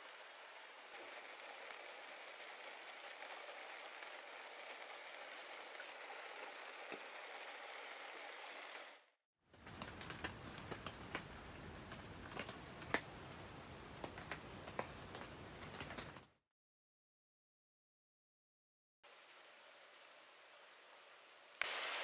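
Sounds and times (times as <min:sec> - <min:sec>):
raindrops ticking on tent: 0:00.0 - 0:08.9, 0:09.5 - 0:16.3
steady rain hiss: 0:00.0 - 0:16.2, 0:19.0 - 0:22.0.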